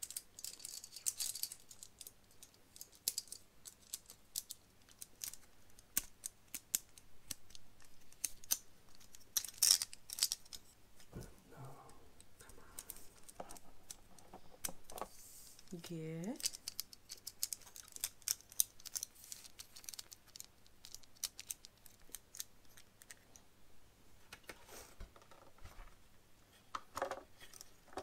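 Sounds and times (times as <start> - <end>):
plastic and metal parts clicking: 16.4 - 23.2.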